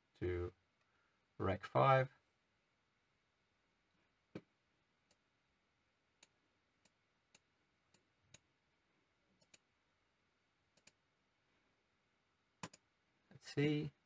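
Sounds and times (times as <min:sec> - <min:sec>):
computer mouse clicks: 0:09.4 - 0:09.7, 0:10.7 - 0:11.0, 0:12.6 - 0:12.8.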